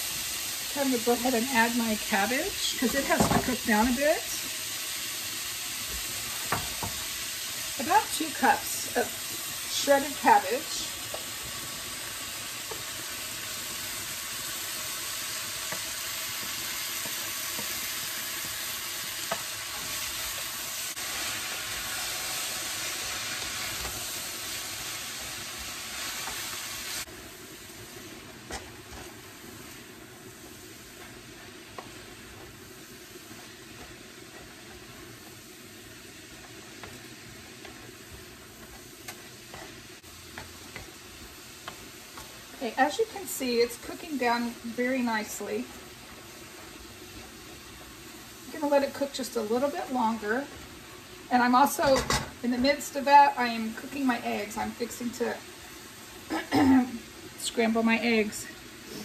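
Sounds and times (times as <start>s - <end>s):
food sizzling in a wok: 0.0s - 59.0s.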